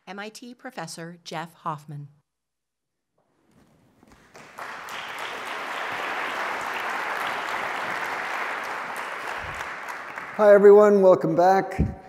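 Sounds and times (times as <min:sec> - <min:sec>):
audience applauding: 0:04.1 - 0:11.1.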